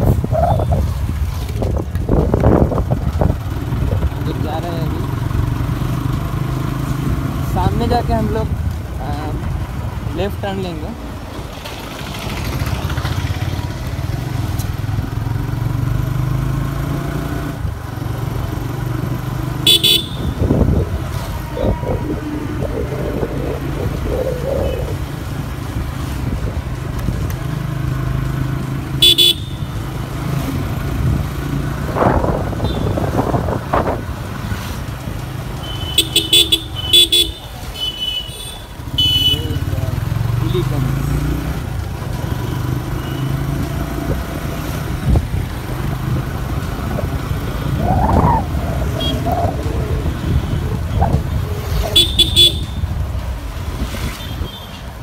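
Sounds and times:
motorcycle engine running: 11.5 - 25.4
horn beeps: 19.7 - 20.4.

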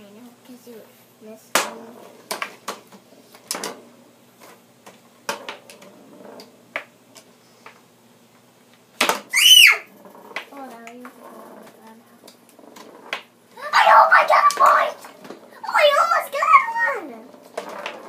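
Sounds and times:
plastic clacks of foosball game: 1.5 - 9.3, 9.9 - 13.4, 14.3 - 15.6, 17.1 - 18.0
child shrieking: 9.3 - 9.9, 13.6 - 15.0, 15.6 - 17.0.

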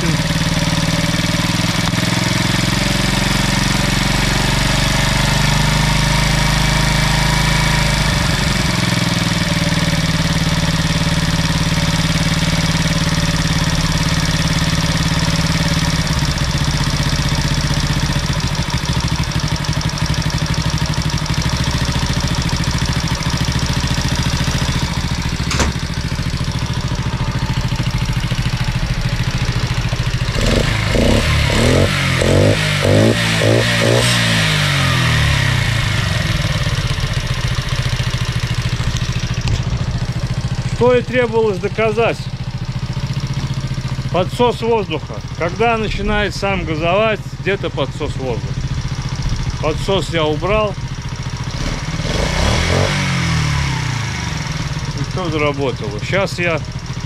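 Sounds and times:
moped engine idling: 0.0 - 57.0
sharp click: 25.4 - 25.8.

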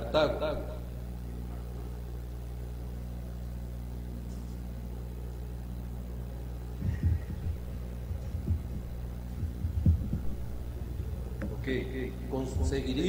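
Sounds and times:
low electrical hum: 0.0 - 13.0
soft low thumps: 6.7 - 13.0.

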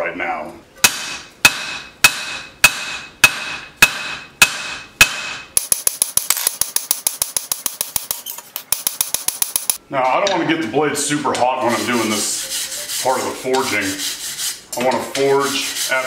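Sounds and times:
hammer striking blade on anvil: 0.8 - 9.8.

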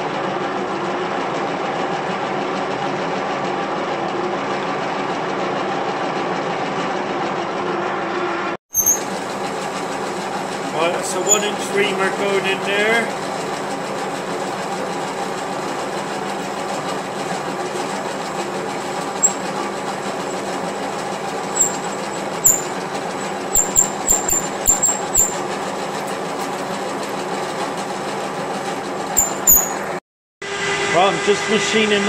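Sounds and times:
metal lathe motor hum: 13.1 - 29.9.

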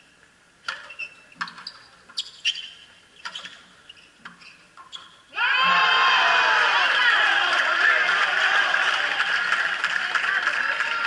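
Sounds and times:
sneaker squeaks on court: 0.8 - 5.3.

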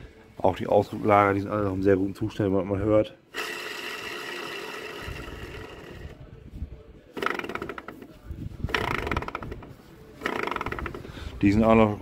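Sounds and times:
bearing rattling when spun: 3.3 - 6.2, 7.2 - 11.2.

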